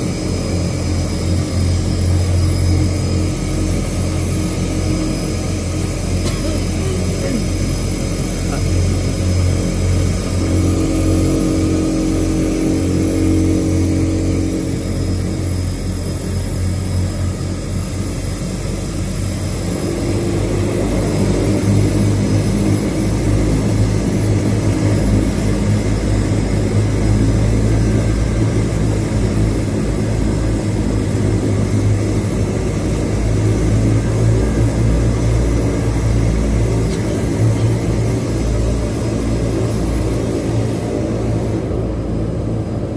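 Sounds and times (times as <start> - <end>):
turboprop engine droning: 0.0 - 42.9.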